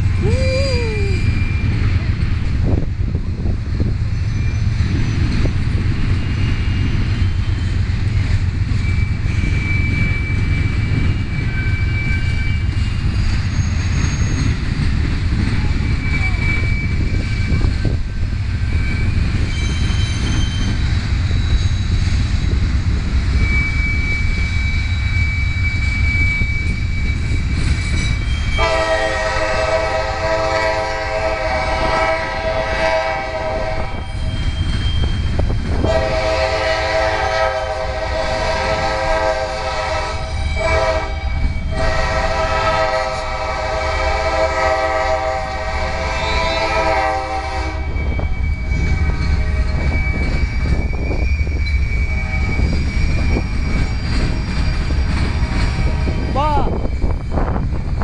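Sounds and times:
freight train wheels rumbling: 0.0 - 58.0
locomotive horn blasts: 28.6 - 34.0, 35.8 - 48.0.

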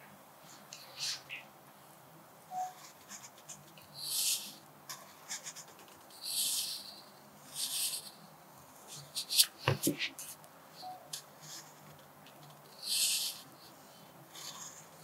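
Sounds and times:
pencil scratching on paper: 2.7 - 8.2, 12.7 - 13.5, 14.3 - 15.0.

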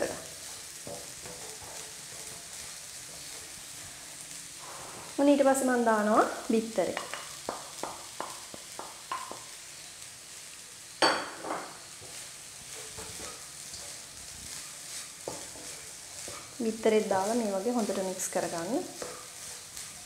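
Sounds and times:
rice sizzling in a hot pan: 0.0 - 20.0
wooden spatula tapping a pan: 0.8 - 3.5, 6.9 - 9.6, 11.0 - 14.0, 15.2 - 16.5, 18.8 - 19.3.

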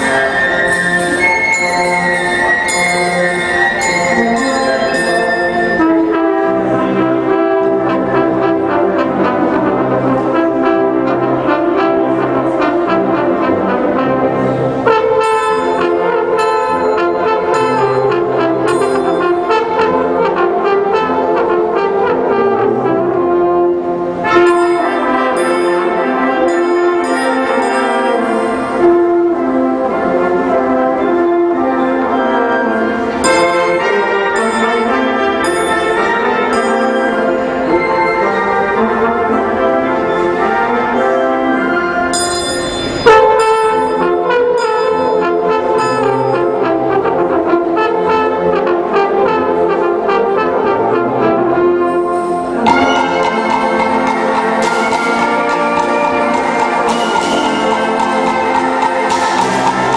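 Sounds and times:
brass band playing: 0.0 - 59.9
high percussion beat: 42.2 - 45.4, 52.2 - 59.9.

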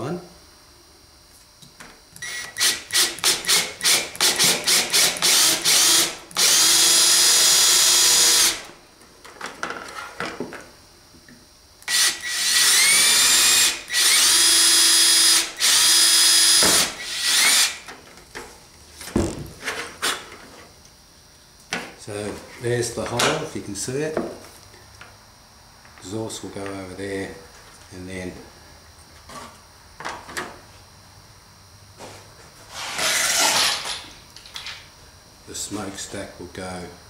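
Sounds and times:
cordless drill boring plastic: 2.2 - 8.6, 11.8 - 17.8.

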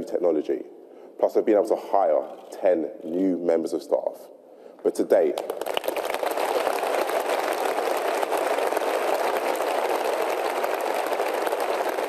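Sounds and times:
audience applause: 5.4 - 12.0.

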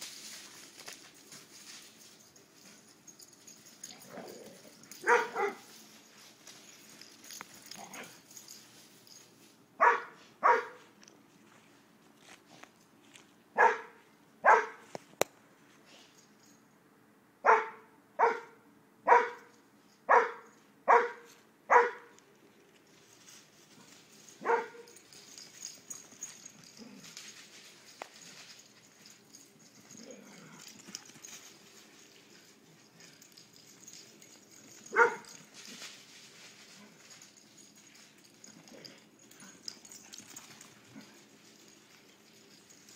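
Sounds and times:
dog barking: 5.0 - 5.7, 9.8 - 10.8, 13.6 - 14.8, 17.4 - 19.5, 20.1 - 22.2, 24.4 - 24.9, 34.9 - 35.3.

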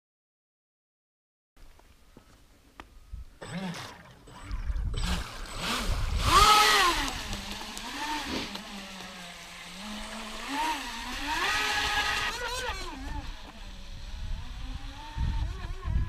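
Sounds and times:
toy jet boat motor whining: 3.4 - 16.0.

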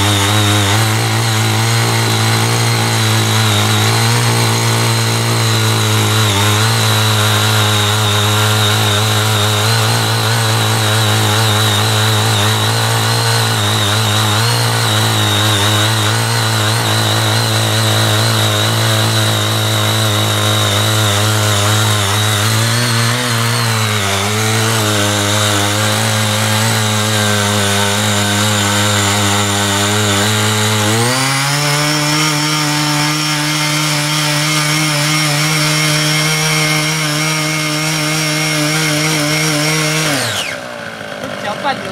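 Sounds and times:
tiller tines churning soil: 0.0 - 41.9
small petrol engine running: 38.3 - 41.9.

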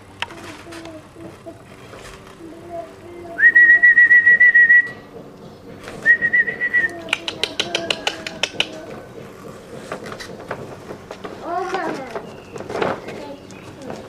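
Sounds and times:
warbling whistle: 3.4 - 5.1, 6.0 - 7.0
sharp clicks: 6.8 - 8.9.

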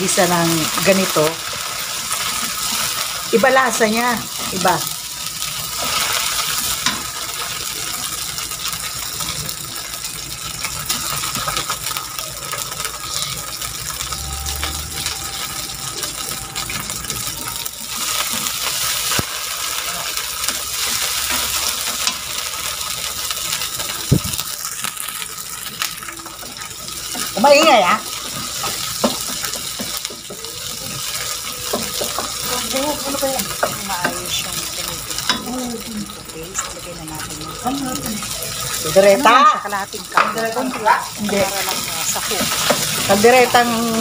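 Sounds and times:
vegetables sizzling in a wok: 0.0 - 44.0
spatula tapping pan: 28.1 - 34.4.

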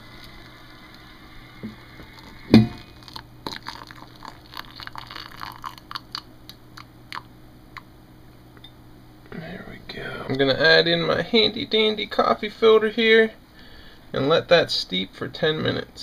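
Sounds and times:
water poured into ceramic mug: 1.7 - 6.2
heavy thump: 2.5 - 2.9.

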